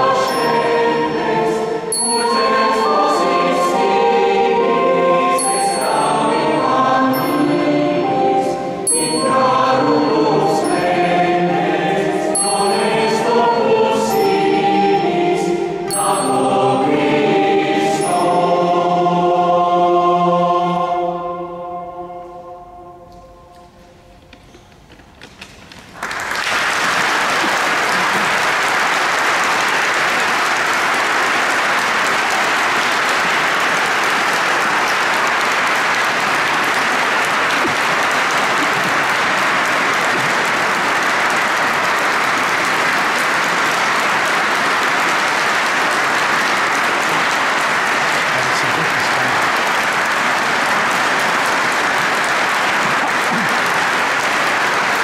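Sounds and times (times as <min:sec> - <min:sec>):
audience applause: 0:25.8 - 0:55.0.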